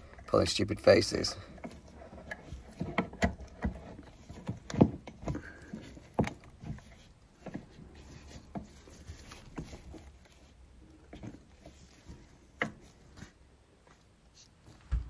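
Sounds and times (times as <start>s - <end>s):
knocks and taps on basin pipework: 1.6s - 7.7s.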